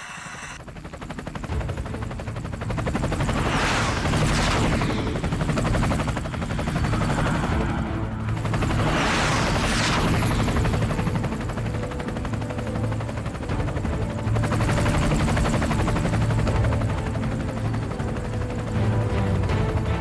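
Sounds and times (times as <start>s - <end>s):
helicopter rotors chopping: 0.0s - 20.0s
helicopter turbine noise: 0.0s - 20.0s
helicopter passing whoosh: 2.8s - 11.6s.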